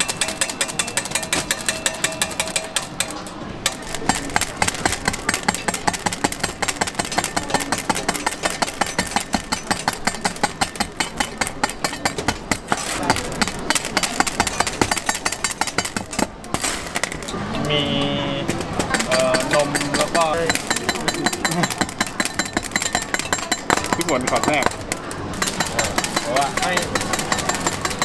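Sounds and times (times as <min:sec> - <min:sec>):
cleaver chopping on steel table: 0:18.8 - 0:28.0.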